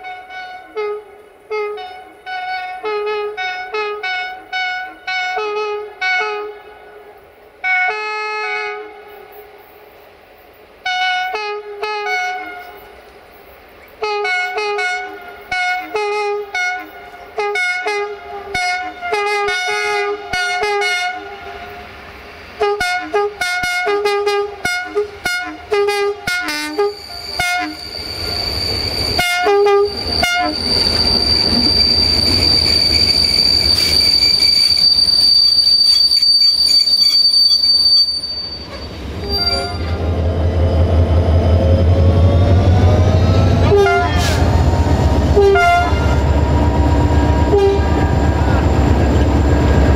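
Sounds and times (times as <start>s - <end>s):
locomotive air horn toots: 0.0s - 6.9s, 7.6s - 9.3s, 10.8s - 13.0s, 14.0s - 21.9s, 22.5s - 40.1s, 42.8s - 49.9s
train engine and coaches rumbling: 0.0s - 49.9s
train wheel squeal: 26.5s - 49.9s.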